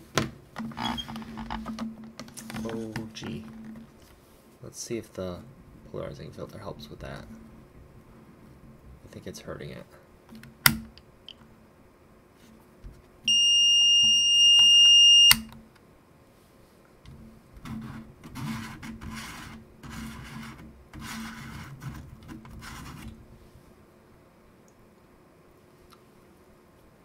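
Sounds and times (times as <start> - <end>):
multimeter high-pitched beep: 13.3 - 15.5.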